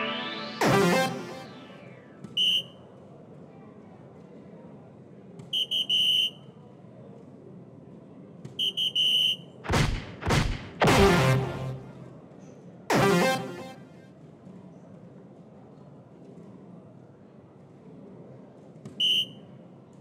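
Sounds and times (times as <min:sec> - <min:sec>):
sweeping electronic sound effect: 0:00.0 - 0:02.4, 0:10.6 - 0:12.2, 0:12.9 - 0:14.1.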